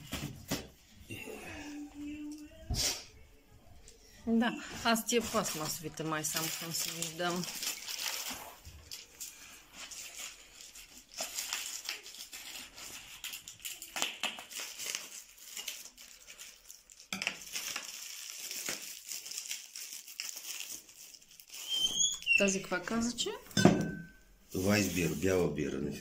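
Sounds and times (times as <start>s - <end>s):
bubble wrap crinkling: 0.0s - 0.8s, 4.8s - 23.4s, 24.5s - 25.6s.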